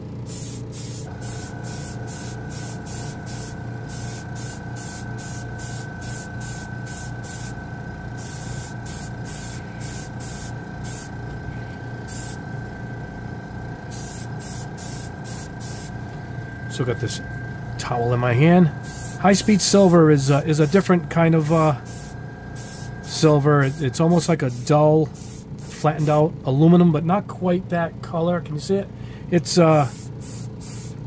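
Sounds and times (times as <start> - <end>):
low hum: 0.0 - 24.6
airbrush hissing: 0.2 - 7.6, 8.2 - 11.2, 12.0 - 12.4, 13.9 - 16.0, 18.8 - 26.2, 29.8 - 31.0.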